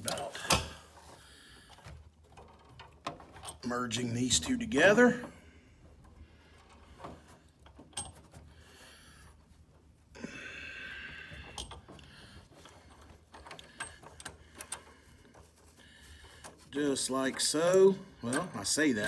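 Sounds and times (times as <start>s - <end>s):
breathy exhale: 10.2s - 12.4s.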